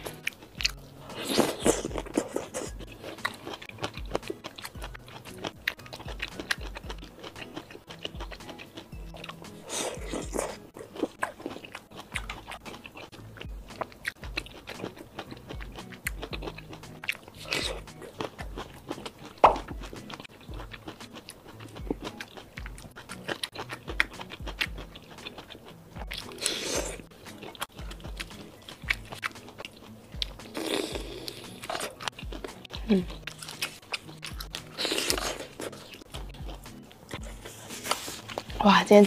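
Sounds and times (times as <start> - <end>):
person chewing food: 0.0 - 38.6
background music with low beat: 0.0 - 39.0.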